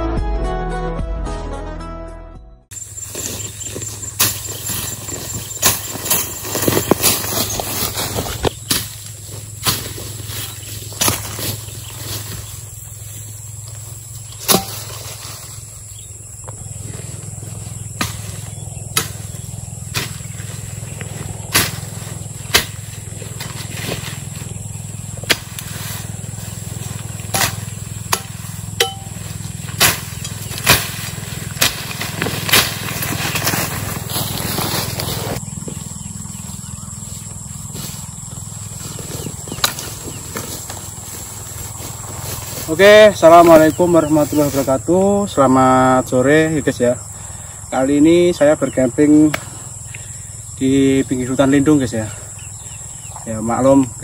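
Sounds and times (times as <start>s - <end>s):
steady low hum: 2.7s - 54.0s
rustling through tall grass: 2.8s - 44.9s.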